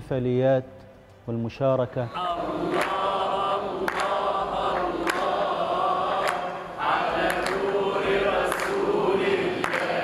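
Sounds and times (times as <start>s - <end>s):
group of voices chanting: 2.1s - 10.0s
sharp handclaps: 2.6s - 10.0s.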